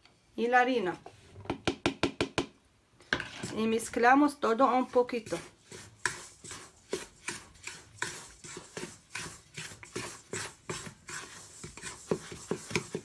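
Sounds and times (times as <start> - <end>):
wooden spatula scraping metal bowl: 3.0 - 13.0.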